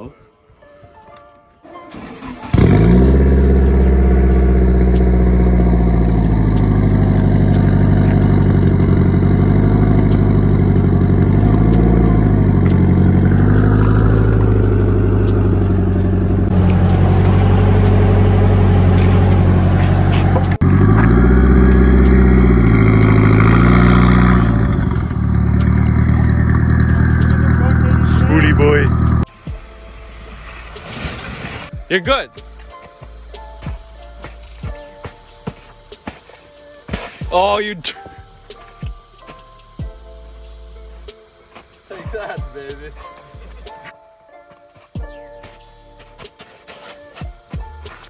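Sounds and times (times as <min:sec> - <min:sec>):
car engine idling and revving: 0:01.9 - 0:30.8.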